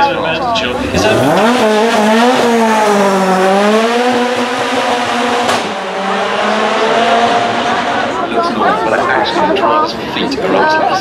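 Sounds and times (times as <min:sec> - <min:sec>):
sports car engine at high revs: 0:00.6 - 0:09.0.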